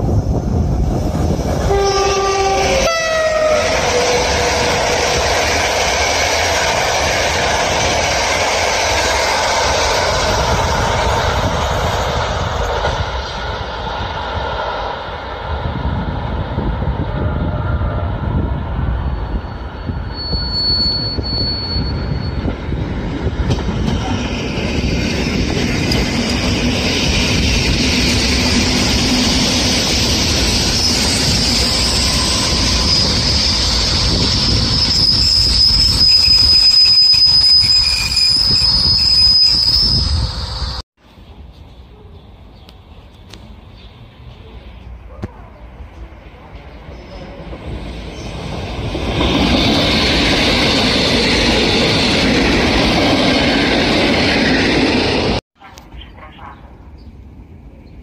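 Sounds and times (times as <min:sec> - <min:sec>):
train wheels rumbling on track: 0:00.0 - 0:55.4
high-pitched wheel squeal: 0:19.0 - 0:22.6, 0:29.2 - 0:40.8.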